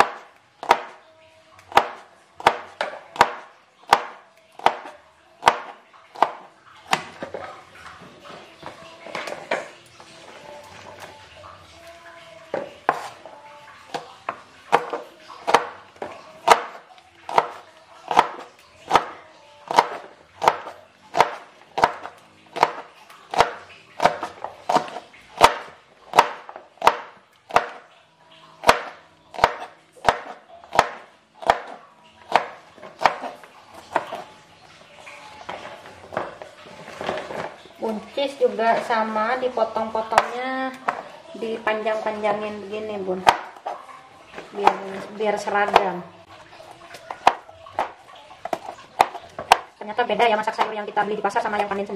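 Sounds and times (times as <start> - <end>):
knife chopping vegetables: 0.0 - 1.0, 1.7 - 7.4, 12.5 - 13.2, 14.7 - 27.9, 28.6 - 34.3, 43.2 - 43.8, 44.5 - 46.0, 46.9 - 51.7
faint background music: 0.0 - 51.9.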